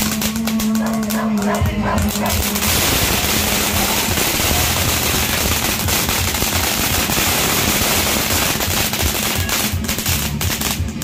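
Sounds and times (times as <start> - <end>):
firework fountain crackling: 0.0 - 11.0
rapid firework pops: 0.0 - 11.0.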